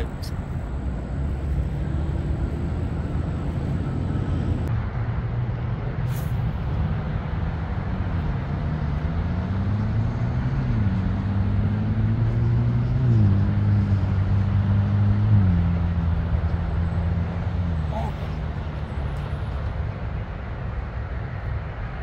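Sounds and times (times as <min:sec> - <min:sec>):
traffic engine rumble: 0:00.0 - 0:22.0
vehicle accelerating through gears: 0:01.0 - 0:04.7, 0:08.0 - 0:19.7.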